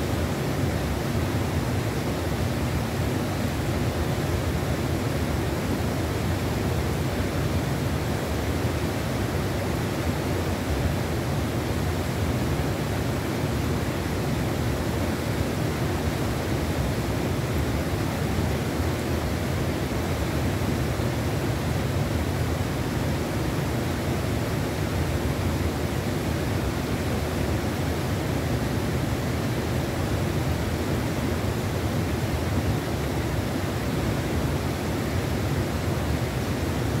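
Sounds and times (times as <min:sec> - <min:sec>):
river water rushing: 0:00.0 - 0:37.0.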